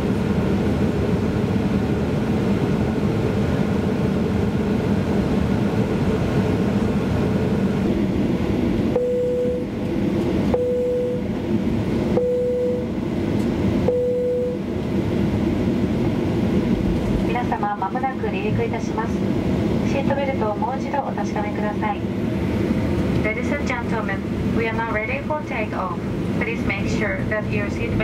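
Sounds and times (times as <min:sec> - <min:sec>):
airplane cabin rumble: 0:00.0 - 0:28.0
short beeps: 0:09.0 - 0:09.7, 0:10.5 - 0:11.2, 0:12.2 - 0:12.8, 0:13.9 - 0:14.6.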